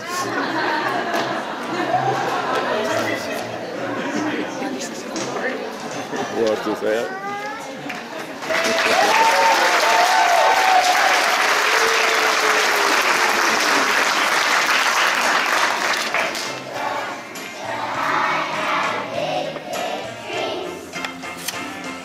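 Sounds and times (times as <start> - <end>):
music: 0.0 - 6.8, 12.4 - 22.0
audience applauding and cheering: 8.3 - 16.7
audience shouts: 8.5 - 13.9.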